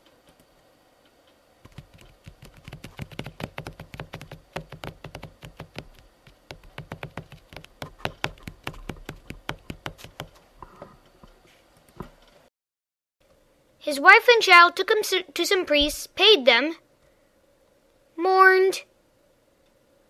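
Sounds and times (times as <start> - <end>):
fast irregular taps and clicks: 1.6 - 10.4.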